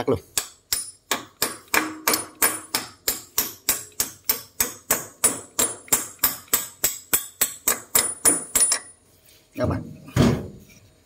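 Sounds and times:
hammer striking metal rod: 0:00.4 - 0:09.0.

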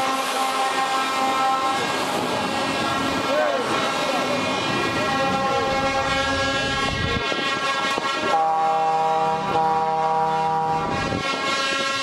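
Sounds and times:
truck air horns chord: 0:00.0 - 0:01.8, 0:04.9 - 0:12.0.

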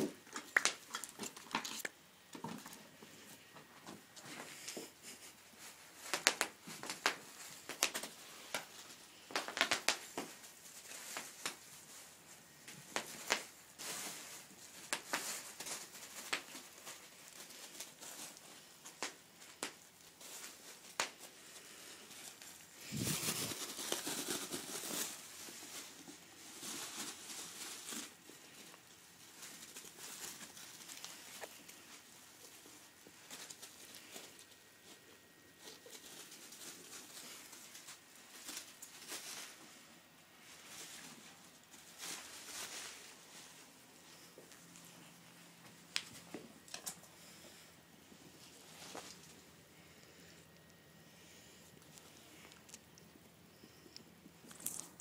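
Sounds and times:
bubble wrap crinkling: 0:00.0 - 0:02.0, 0:04.2 - 0:50.7, 0:51.6 - 0:55.0.

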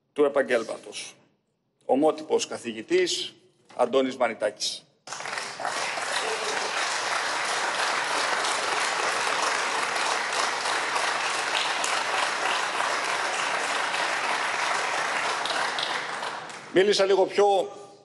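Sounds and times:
crowd applauding: 0:05.1 - 0:17.0.

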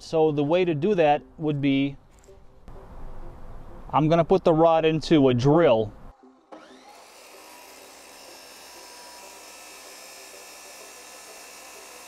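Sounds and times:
chop saw whirring: 0:06.3 - 0:12.0.

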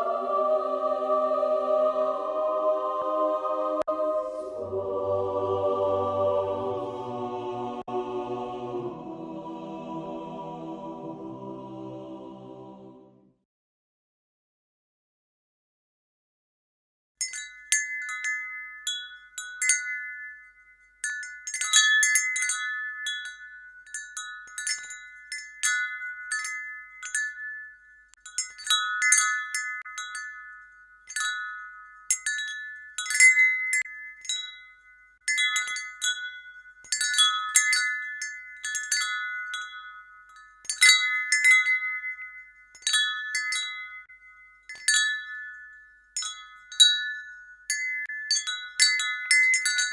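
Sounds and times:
wind chimes ringing: 0:00.0 - 0:02.9, 0:17.2 - 0:49.9.

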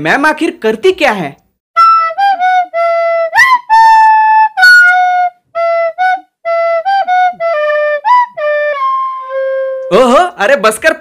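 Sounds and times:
solo flute melody: 0:01.8 - 0:10.1.

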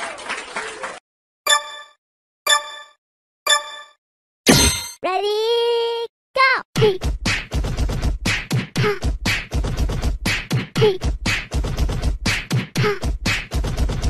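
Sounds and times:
beatboxing: 0:06.8 - 0:14.0.

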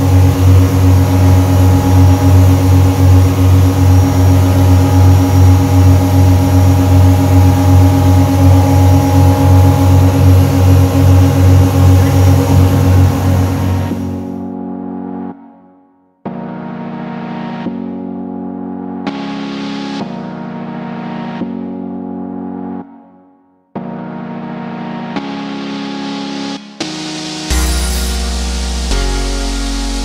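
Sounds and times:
motorboat engine droning: 0:00.0 - 0:15.0, 0:27.2 - 0:30.0.

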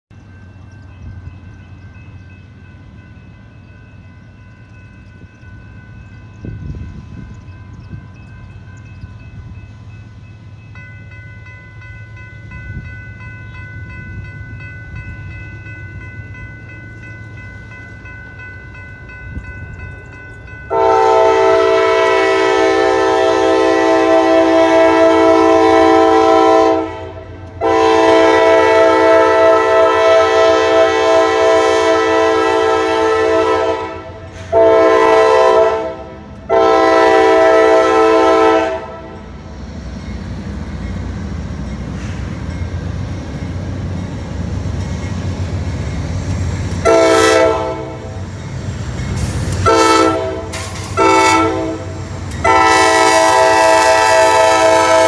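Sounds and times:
electronic crossing bell ringing: 0:00.2 - 0:22.1
train horn blast: 0:20.7 - 0:39.3, 0:46.8 - 0:48.2, 0:49.5 - 0:55.0.

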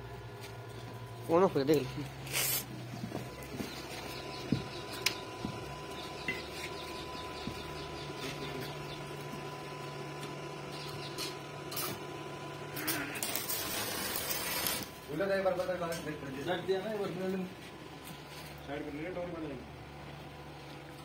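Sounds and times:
cooling fan humming: 0:00.0 - 0:21.0
welding arc hissing crackle: 0:01.3 - 0:03.5, 0:09.8 - 0:15.7.

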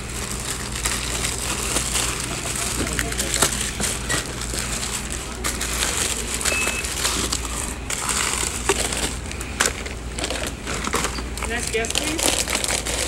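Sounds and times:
plastic packets crinkling: 0:00.0 - 0:13.0
short high beep: 0:06.5 - 0:06.9.

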